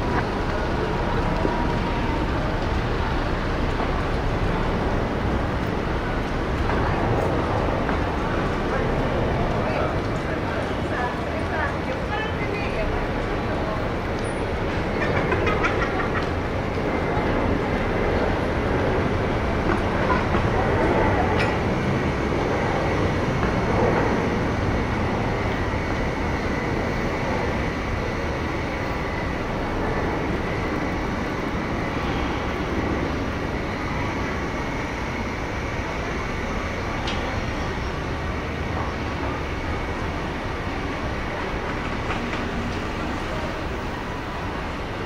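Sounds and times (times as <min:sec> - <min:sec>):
train rumbling past: 0:00.0 - 0:45.0.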